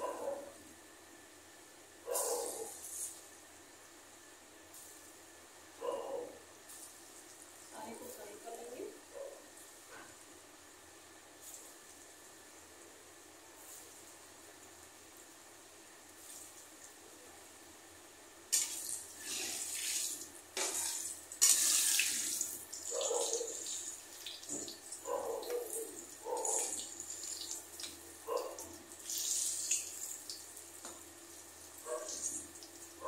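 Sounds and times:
dough sizzling in hot oil: 0:11.0 - 0:33.0.

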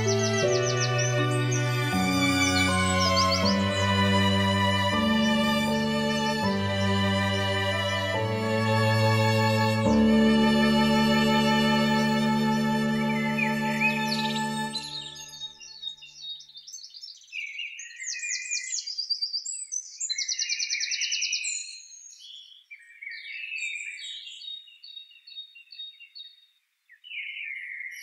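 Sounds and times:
music note: 0:00.0 - 0:15.3
songbirds singing: 0:00.0 - 0:28.0.

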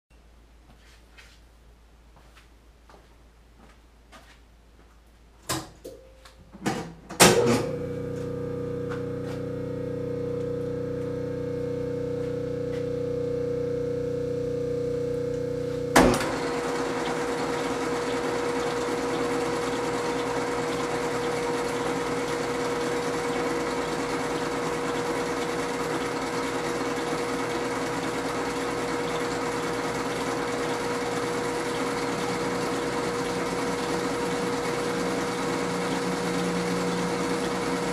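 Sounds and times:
lathe motor humming: 0:07.6 - 0:37.9
lathe controls clunking: 0:15.2 - 0:37.9.

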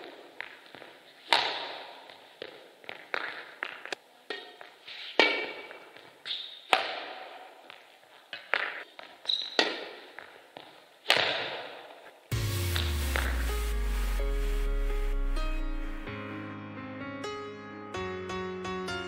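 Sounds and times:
footsteps: 0:00.0 - 0:09.2, 0:11.8 - 0:14.7
racket hitting shuttlecock: 0:00.0 - 0:12.1
background music: 0:12.3 - 0:19.0.

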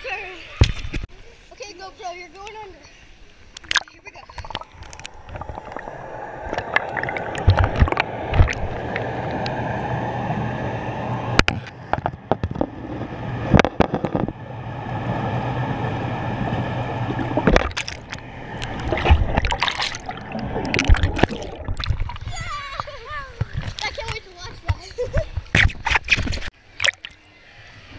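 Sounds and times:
underwater rush of water: 0:03.5 - 0:24.2.

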